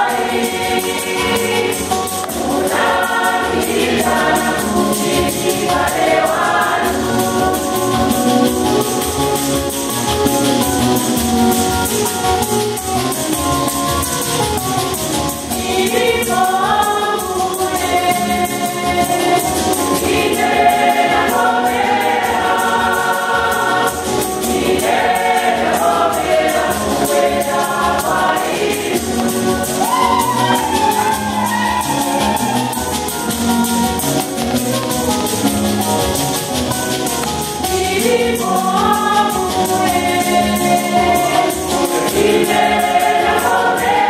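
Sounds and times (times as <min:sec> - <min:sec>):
choir singing a hymn: 0:00.0 - 0:10.2, 0:15.4 - 0:33.3, 0:37.2 - 0:44.0
percussion beat: 0:00.0 - 0:44.0.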